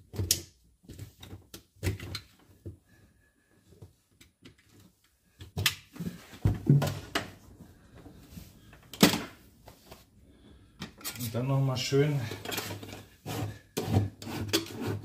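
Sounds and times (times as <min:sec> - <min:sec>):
handling knocks and clunks: 0:05.4 - 0:07.4.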